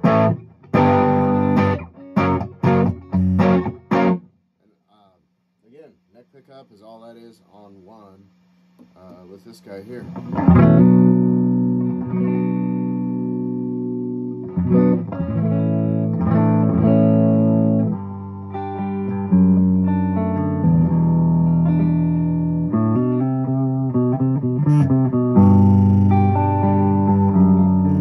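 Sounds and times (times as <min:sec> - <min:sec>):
electric guitar chords ringing: 0:00.0 - 0:04.3, 0:10.1 - 0:28.0
electric guitar single notes: 0:00.0 - 0:04.3, 0:10.0 - 0:28.0.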